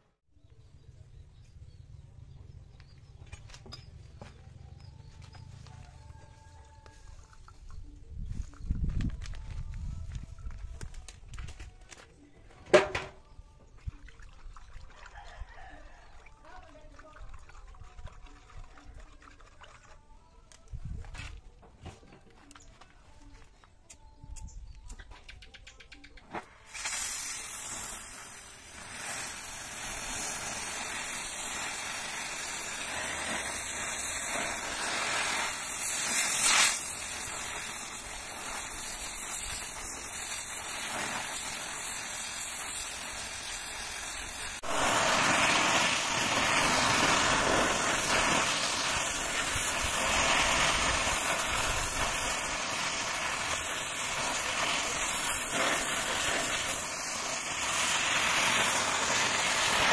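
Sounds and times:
cutting torch flame hissing: 0:26.6 - 0:59.9.

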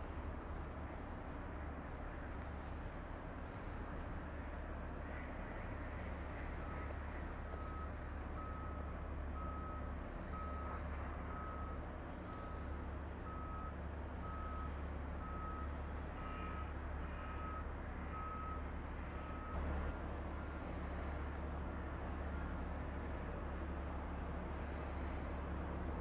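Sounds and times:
reversing alarm beeping: 0:06.6 - 0:19.6.

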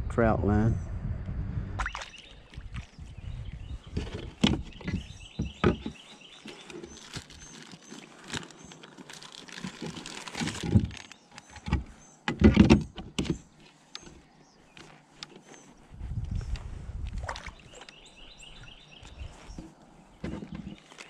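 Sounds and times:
plastic packet rustling: 0:06.3 - 0:11.3.

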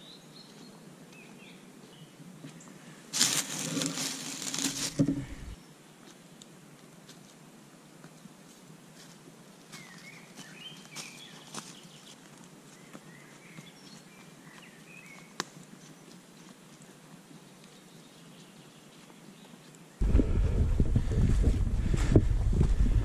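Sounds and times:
footsteps crunching in dry leaves: 0:03.1 - 0:05.6, 0:09.0 - 0:12.5
small birds chirping: 0:09.7 - 0:16.2.

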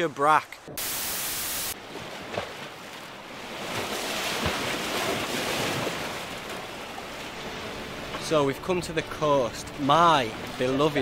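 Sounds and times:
tv static white noise: 0:00.8 - 0:01.8.

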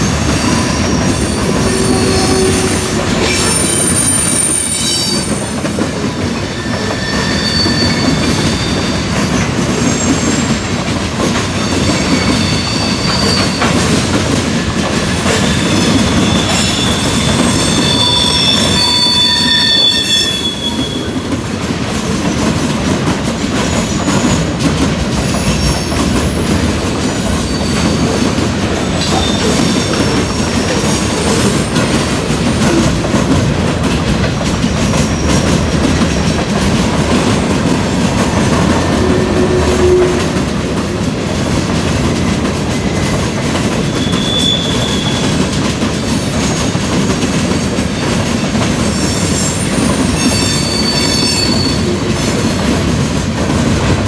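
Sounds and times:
high-pitched wheel squeals: 0:00.0 - 0:05.6, 0:06.5 - 0:09.1, 0:11.6 - 0:14.0, 0:15.4 - 0:21.2, 0:43.9 - 0:45.4, 0:48.9 - 0:52.4
train wheels rumbling on rails: 0:00.0 - 0:54.0.

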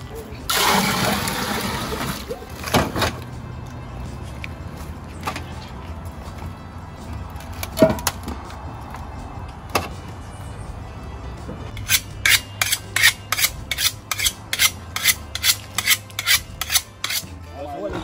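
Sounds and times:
knife strokes on sharpening rod: 0:11.8 - 0:17.3.

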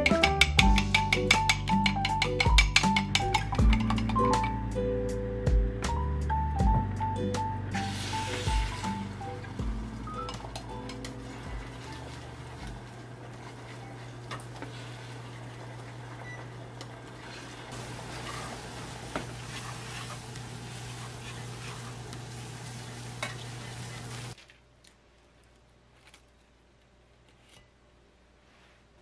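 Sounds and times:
chopsticks clicking against pan: 0:00.0 - 0:04.2
steady low hum: 0:03.5 - 0:24.1
egg sizzling in frying pan: 0:07.8 - 0:16.2, 0:17.2 - 0:24.4.

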